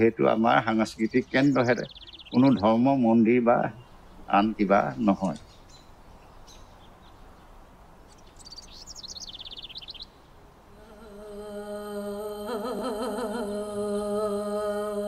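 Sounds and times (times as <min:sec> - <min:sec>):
bird trill: 0:00.0 - 0:07.5, 0:08.1 - 0:10.3.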